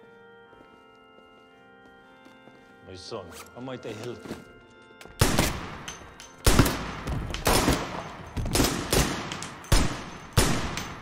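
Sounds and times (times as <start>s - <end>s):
echoing handgun shots: 5.2s - 11.0s.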